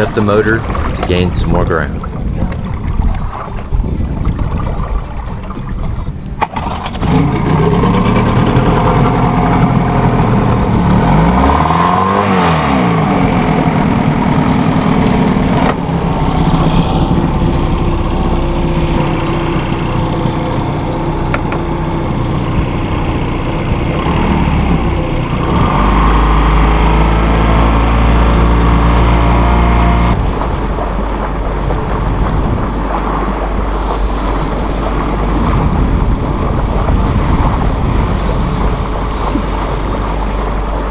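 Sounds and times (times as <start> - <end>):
outboard motor running: 0.0 - 40.9.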